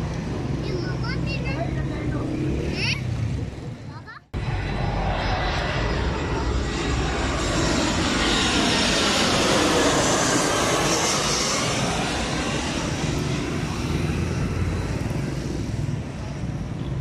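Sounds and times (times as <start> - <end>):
jet engine roar: 4.3 - 17.0.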